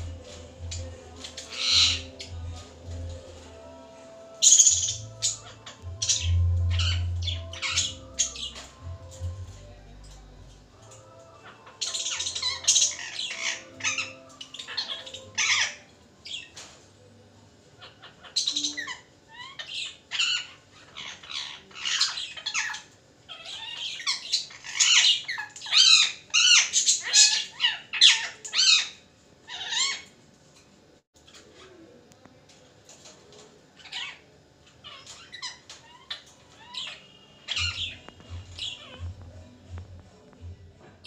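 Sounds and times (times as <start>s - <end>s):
parakeet squawking: 0.0s - 3.2s, 4.2s - 9.6s, 11.1s - 16.5s, 17.8s - 30.0s, 33.8s - 39.4s.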